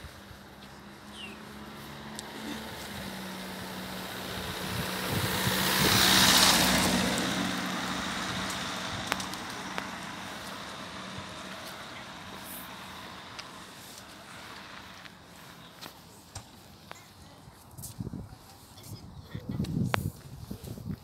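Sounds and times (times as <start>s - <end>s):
car driving past: 0.6s - 15.7s.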